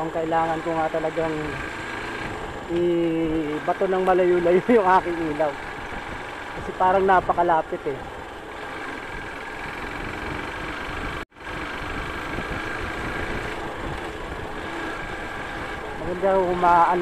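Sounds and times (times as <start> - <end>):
motorcycle engine running: 0.0 - 17.0
wind rush on microphone: 3.9 - 17.0.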